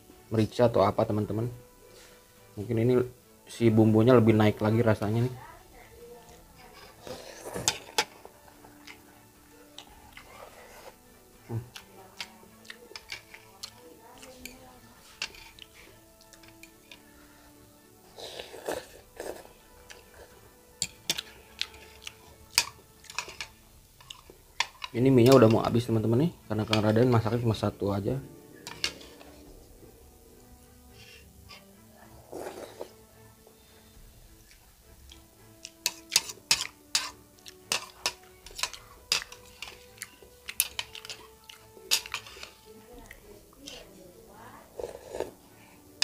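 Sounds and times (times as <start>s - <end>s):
faint background music: 0.0s - 46.0s
metal cutlery clinking on bowl: 6.6s - 9.1s, 11.7s - 17.1s, 18.6s - 27.4s, 28.6s - 29.4s, 35.1s - 42.8s, 43.6s - 43.9s
chewing: 6.6s - 14.4s, 15.0s - 17.1s, 18.1s - 25.5s, 28.6s - 30.5s, 34.4s - 43.9s, 44.7s - 46.0s
spoon and fork clinking on ceramic bowl: 20.8s - 25.6s, 35.8s - 42.5s.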